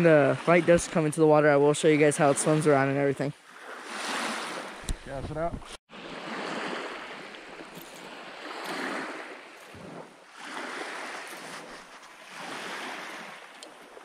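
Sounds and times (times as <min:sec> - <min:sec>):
small waves washing onto gravel: 0:06.2 - 0:14.0.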